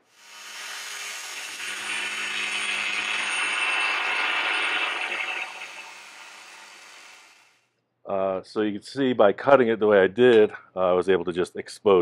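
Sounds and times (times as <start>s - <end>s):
power tool cutting steel: 0.0s - 7.6s.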